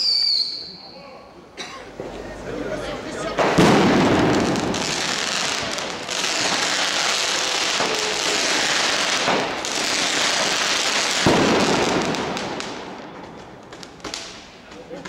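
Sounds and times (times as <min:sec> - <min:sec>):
fireworks hissing and crackling: 0:01.9 - 0:15.0
firework burst: 0:03.4 - 0:14.7.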